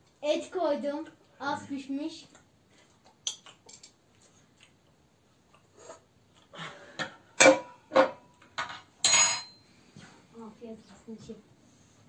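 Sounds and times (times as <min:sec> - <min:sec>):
plate and cutlery clattering: 0:07.4 - 0:09.6.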